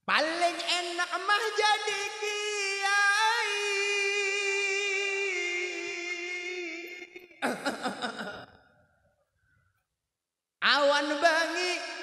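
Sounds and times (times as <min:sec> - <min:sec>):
man singing through microphone: 0:00.0 - 0:08.1, 0:10.6 - 0:12.0.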